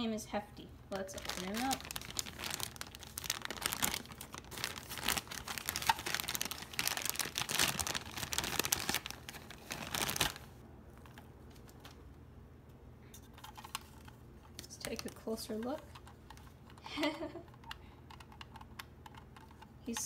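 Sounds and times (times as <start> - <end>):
plastic bag crinkling: 0.9 - 12.0.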